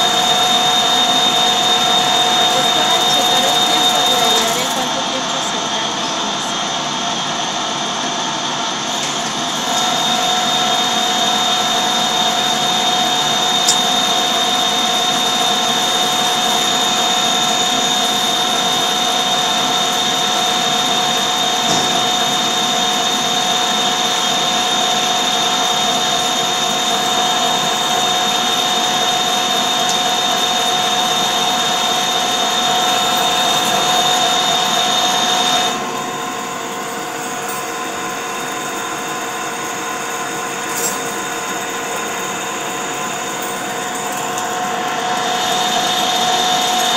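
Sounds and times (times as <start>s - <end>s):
metal lathe machining: 0.0s - 46.9s.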